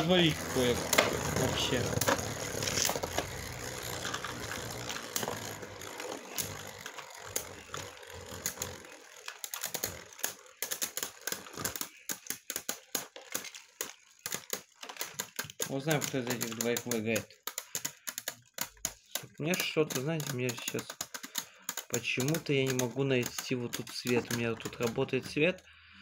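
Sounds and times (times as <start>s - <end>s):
spinning tops whirring on metal: 0.0s - 13.4s, 15.4s - 18.0s
spinning tops clicking and clattering: 0.0s - 25.5s.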